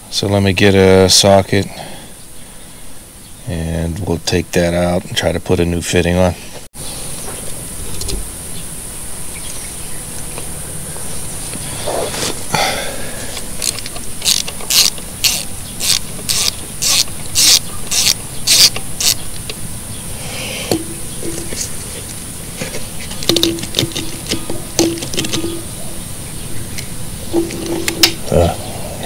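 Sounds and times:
socket ratchet clicking: 0:13.6 - 0:19.2.

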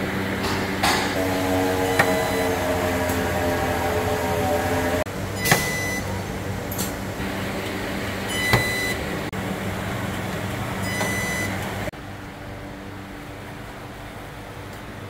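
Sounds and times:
steady machine hum: 0:00.0 - 0:15.0
sharp sounds with high beep: 0:05.4 - 0:06.1, 0:08.3 - 0:09.0.

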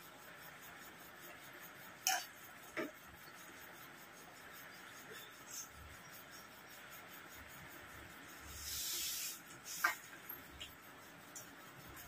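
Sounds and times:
brief hiss: 0:08.6 - 0:10.0
food mixed by hand on plates: 0:08.6 - 0:10.8.

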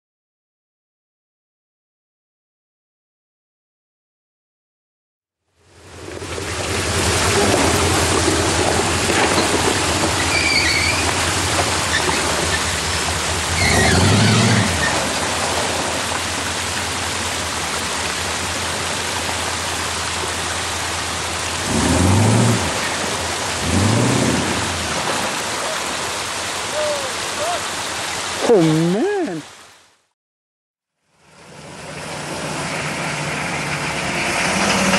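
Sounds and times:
engine humming and revving: 0:05.8 - 0:25.6, 0:31.2 - 0:34.9
rushing noise: 0:31.4 - 0:34.9.

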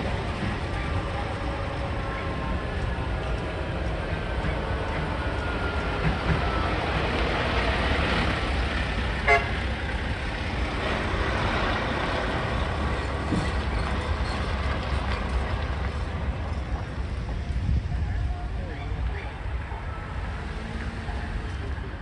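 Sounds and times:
truck diesel engine: 0:00.0 - 0:22.0
truck horn toot: 0:09.2 - 0:09.6.

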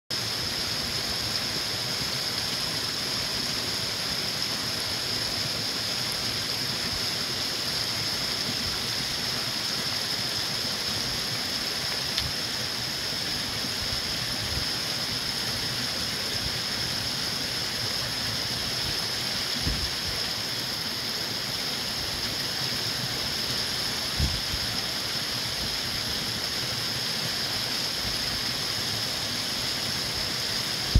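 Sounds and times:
brook babbling over stones: 0:00.1 - 0:30.9.

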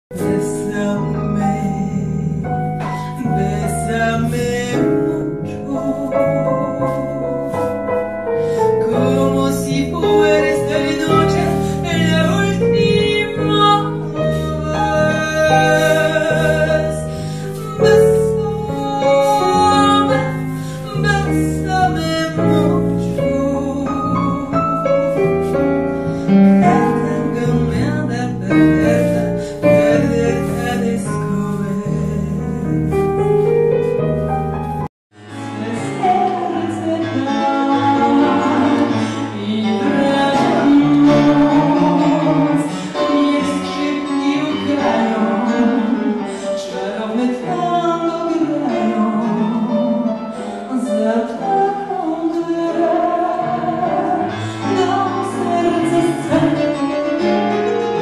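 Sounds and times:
woman singing into microphone: 0:00.1 - 0:25.6, 0:26.2 - 0:32.9, 0:35.3 - 0:58.0
keyboard playing chords: 0:29.0 - 0:46.6.

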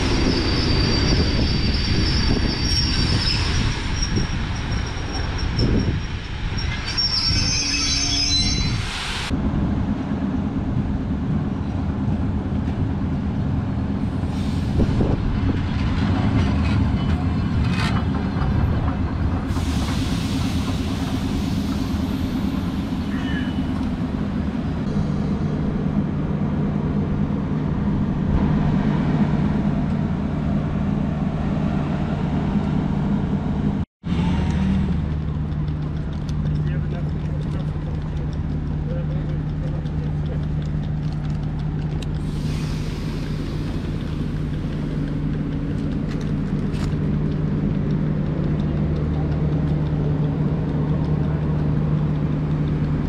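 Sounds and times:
train wheels squealing: 0:00.0 - 0:09.3, 0:19.5 - 0:23.9
diesel train engine droning: 0:00.0 - 0:53.0.

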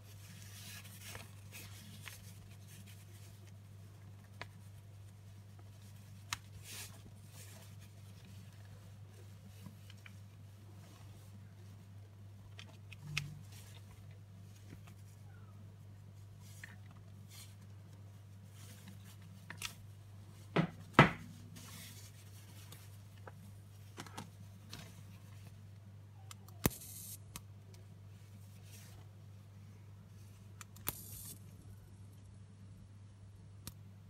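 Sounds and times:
plasma arc buzzing: 0:26.7 - 0:27.2, 0:30.9 - 0:31.4.

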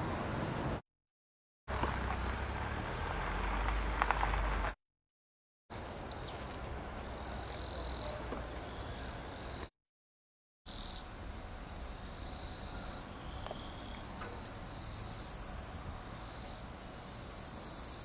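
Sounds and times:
insects chirping: 0:05.7 - 0:09.7, 0:10.7 - 0:18.0.

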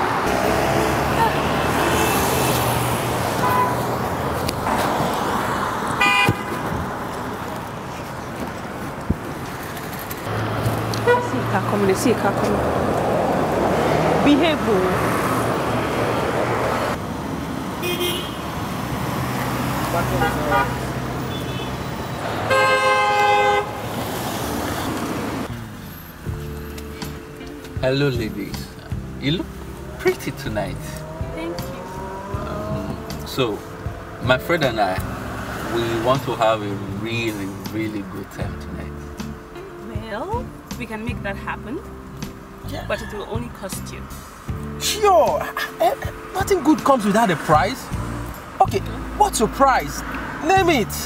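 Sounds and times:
passing cars: 0:00.0 - 0:51.0
car horn toot: 0:03.4 - 0:03.9, 0:06.0 - 0:06.7, 0:11.0 - 0:11.5, 0:17.8 - 0:18.5, 0:20.0 - 0:23.8.

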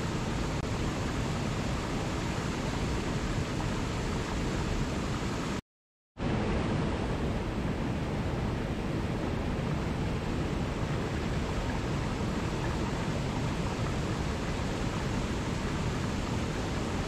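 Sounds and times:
waterfall rushing over rocks: 0:10.5 - 0:17.0.

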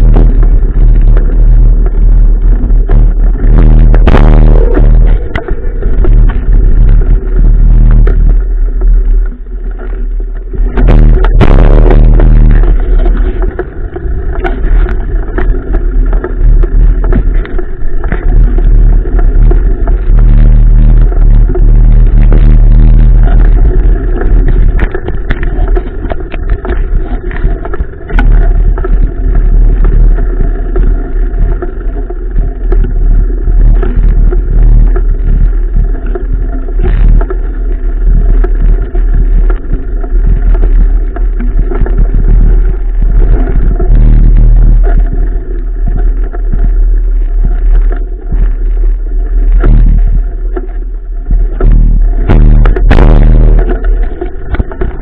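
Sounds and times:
wind rumble: 0:00.0 - 0:55.0.

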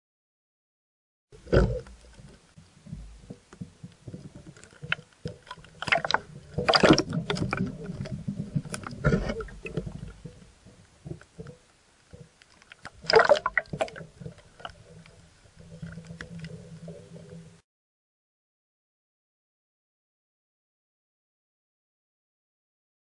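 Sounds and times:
water splashing: 0:01.4 - 0:11.6, 0:12.2 - 0:17.5
muffled underwater sloshing: 0:01.4 - 0:17.6.

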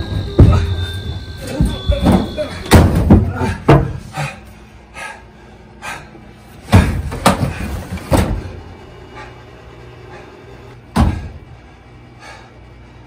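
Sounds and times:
thumps against laundry machine: 0:01.5 - 0:04.0, 0:06.7 - 0:08.6, 0:10.9 - 0:11.4.

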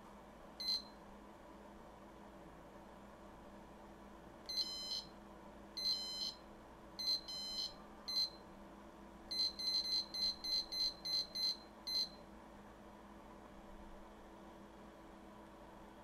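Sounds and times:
high alarm beeps: 0:00.6 - 0:00.9, 0:04.5 - 0:05.1, 0:05.8 - 0:06.4, 0:07.0 - 0:08.4, 0:09.3 - 0:12.2
short beeps: 0:00.6 - 0:01.0, 0:04.5 - 0:05.1, 0:05.8 - 0:06.4, 0:07.0 - 0:08.4, 0:09.3 - 0:12.2.

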